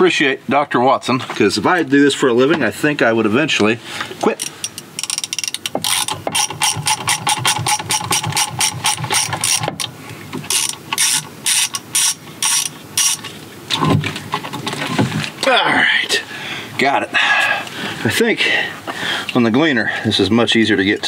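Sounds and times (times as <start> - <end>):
ratchet wrench clicking: 4.4 - 9.9, 10.5 - 13.2.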